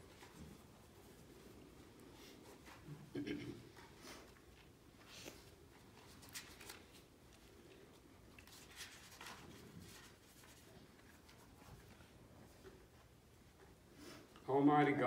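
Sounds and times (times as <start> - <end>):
book pages turning: 6.1 - 7.7, 8.4 - 10.6.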